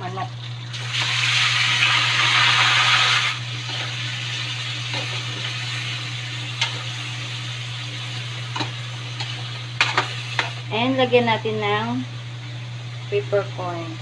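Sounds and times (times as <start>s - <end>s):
chicken sizzling in wok: 0.7s - 11.8s.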